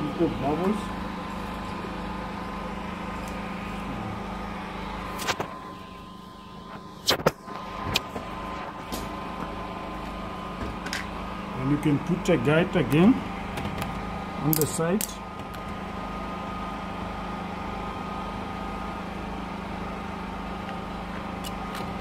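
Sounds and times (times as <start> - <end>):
generator engine running: 0.0 - 22.0.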